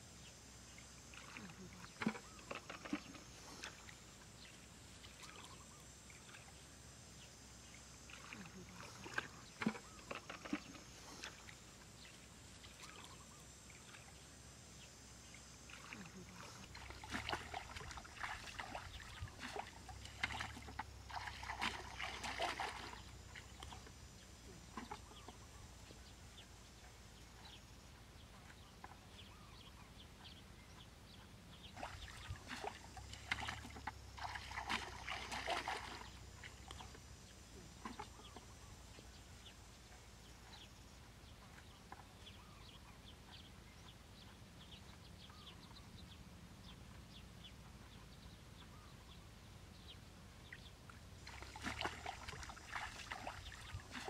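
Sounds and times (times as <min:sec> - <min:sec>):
muddy water splashing: 0:00.6 - 0:05.6, 0:06.2 - 0:27.6, 0:31.6 - 0:42.6, 0:50.2 - 0:54.0
bucket pouring water: 0:16.8 - 0:23.0, 0:51.3 - 0:54.0.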